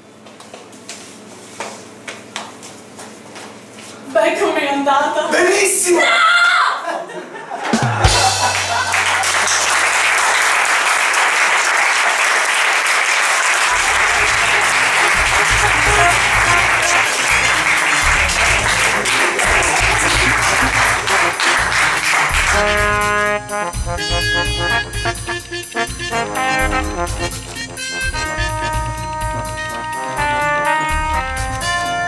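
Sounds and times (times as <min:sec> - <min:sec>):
audience applauding: 0:07.7 - 0:23.4
music with low bass line: 0:13.7 - 0:32.0.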